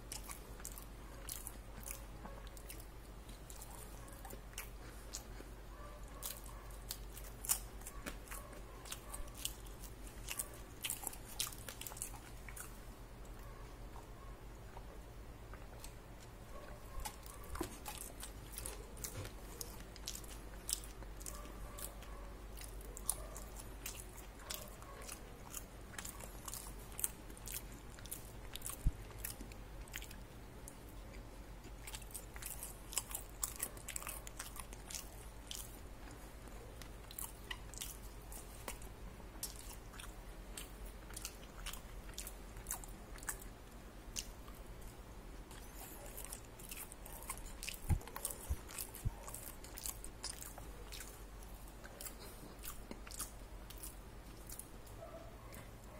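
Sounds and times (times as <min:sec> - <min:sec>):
person chewing crispy food: 0:00.0 - 0:13.4, 0:14.7 - 0:55.7.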